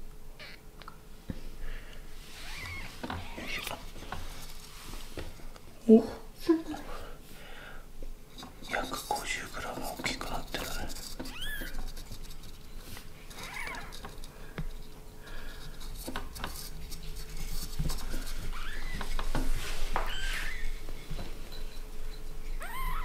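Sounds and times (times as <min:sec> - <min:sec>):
kitten mewing: 0:11.3 - 0:11.8, 0:13.4 - 0:13.9, 0:22.6 - 0:23.0.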